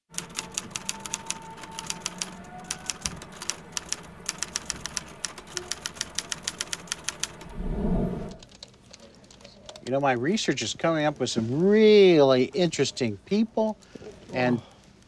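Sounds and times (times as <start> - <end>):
typewriter keys clacking: 0.1 - 7.5
loud low boom: 7.4 - 8.4.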